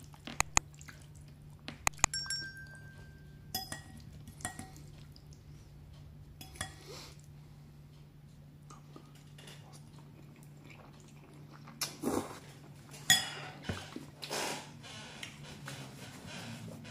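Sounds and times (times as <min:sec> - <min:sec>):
fork clinking on ceramic bowl: 0:01.9 - 0:04.7.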